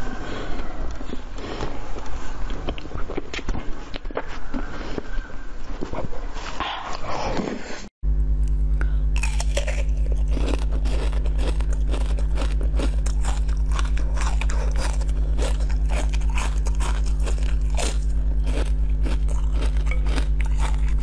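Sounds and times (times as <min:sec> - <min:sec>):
low hum: 0:00.0 - 0:21.0
crunching frozen sweet: 0:09.1 - 0:21.0.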